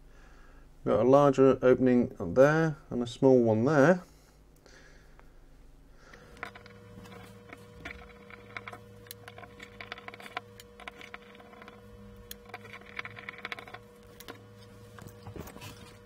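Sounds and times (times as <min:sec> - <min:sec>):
steady low hum: 0:00.0 - 0:16.0
small metal clicks: 0:06.1 - 0:16.0
screwdriver scraping screws: 0:06.2 - 0:16.0.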